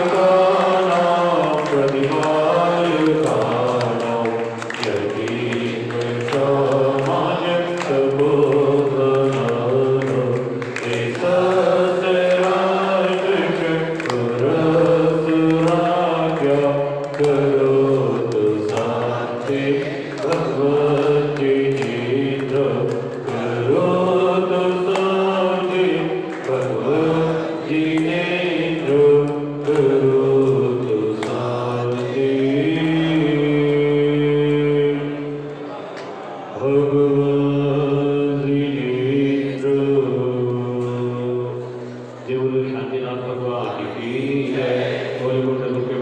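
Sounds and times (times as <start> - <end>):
voices chanting a sung mantra: 0.0 - 46.0.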